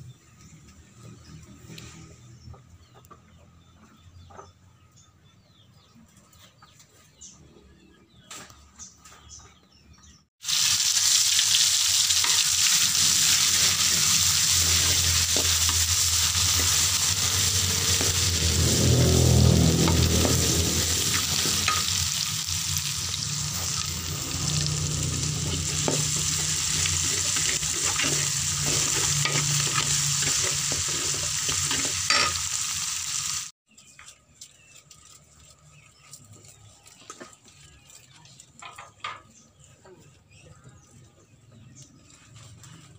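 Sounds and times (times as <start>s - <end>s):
rice sizzling in a wok: 10.4s - 33.6s
metal spatula scraping a wok: 11.8s - 32.6s.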